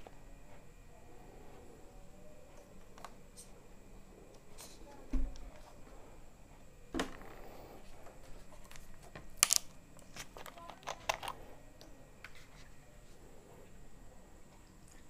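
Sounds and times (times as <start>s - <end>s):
plastic bottle clicks and crinkles: 8.6s - 11.4s.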